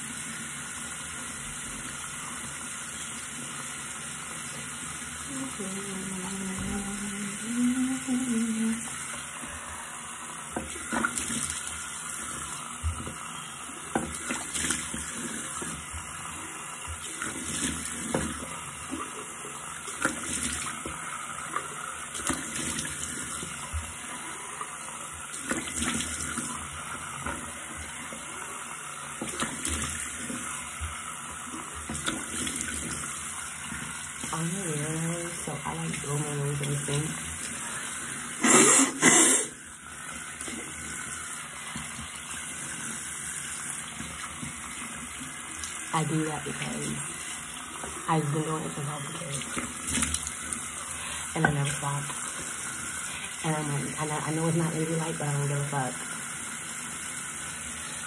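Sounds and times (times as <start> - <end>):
water splashing: 5.3 - 56.5
tap running into sink: 10.4 - 28.3, 29.1 - 34.5, 40.1 - 48.1, 49.2 - 53.0.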